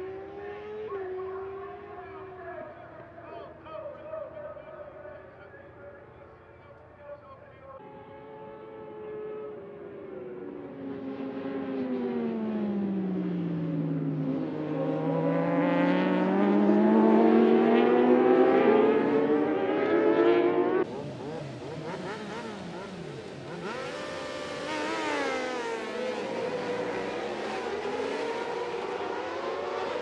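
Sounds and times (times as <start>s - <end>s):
racing motorcycle engines revving: 0.0s - 30.0s
motorcycles revving on start grid: 8.2s - 30.0s.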